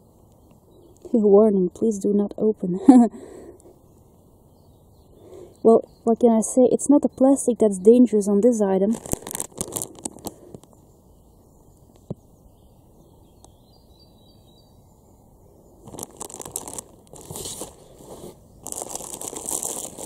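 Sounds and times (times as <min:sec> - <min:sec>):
bird chirping: 0:00.0 - 0:02.5, 0:03.6 - 0:08.9, 0:10.8 - 0:16.8
plastic bag crinkling: 0:08.9 - 0:10.7, 0:15.8 - 0:20.0.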